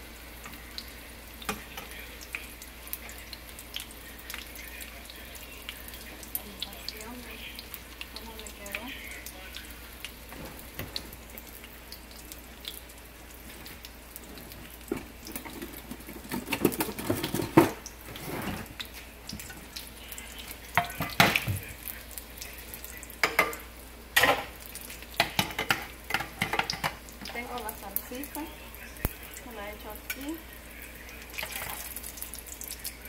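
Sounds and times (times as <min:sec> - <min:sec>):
food sizzling in oil: 0:00.0 - 0:33.0
utensils and dishes clattering: 0:14.3 - 0:19.7, 0:20.8 - 0:21.6, 0:23.2 - 0:24.6, 0:25.2 - 0:27.5.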